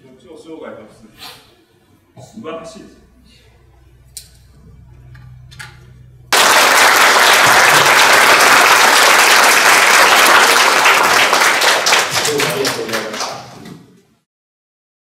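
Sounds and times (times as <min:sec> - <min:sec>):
low hum: 0:01.6 - 0:06.5
audience applauding: 0:06.3 - 0:13.7.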